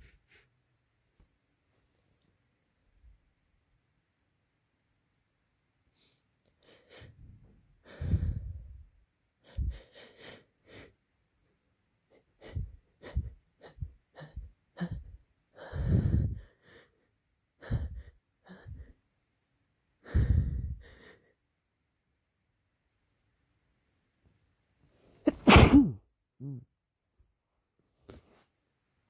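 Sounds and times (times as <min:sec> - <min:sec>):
person gasping before sneeze: 0:25.2 - 0:26.6.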